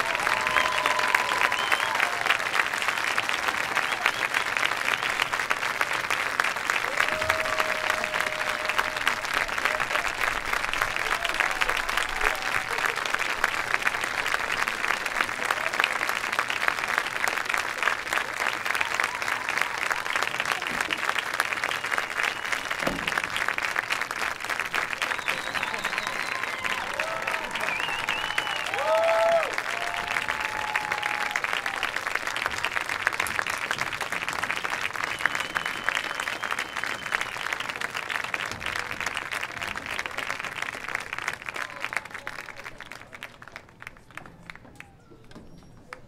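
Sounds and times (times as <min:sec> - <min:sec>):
brief cheers: 0:00.0 - 0:02.6, 0:06.9 - 0:10.2, 0:25.0 - 0:32.0
audience applauding: 0:00.0 - 0:46.0.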